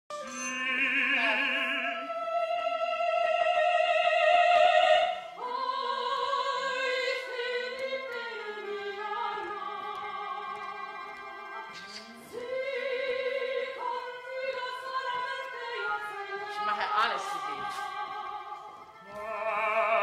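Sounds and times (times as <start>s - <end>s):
operatic singing with vibrato: 0.1s - 20.0s
small orchestra: 0.1s - 20.0s.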